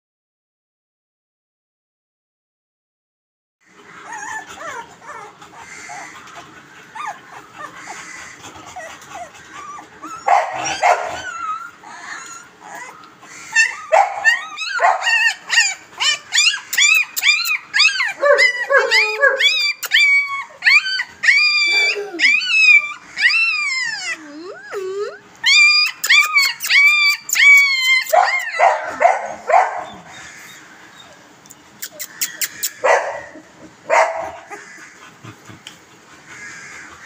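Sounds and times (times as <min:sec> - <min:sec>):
puppies whimpering and squealing: 0:03.7 - 0:37.0.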